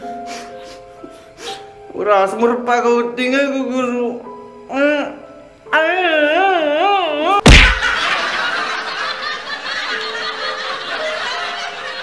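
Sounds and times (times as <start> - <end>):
loud bang: 7.5 - 8.0
laughter: 7.6 - 12.0.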